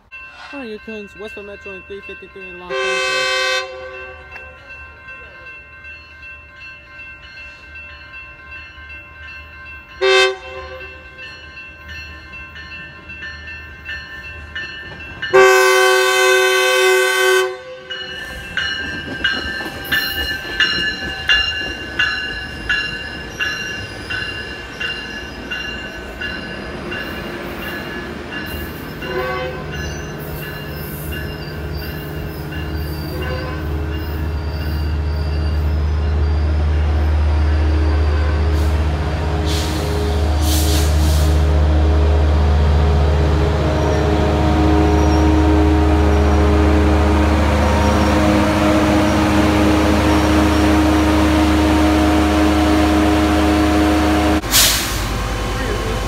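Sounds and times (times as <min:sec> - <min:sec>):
crossing bell ringing: 0:00.0 - 0:54.5
train horn blasts: 0:02.7 - 0:04.3, 0:10.0 - 0:11.1, 0:15.3 - 0:18.0, 0:29.0 - 0:29.8, 0:33.0 - 0:34.0, 0:35.8 - 0:55.9
train wheels clicking: 0:18.1 - 0:33.2.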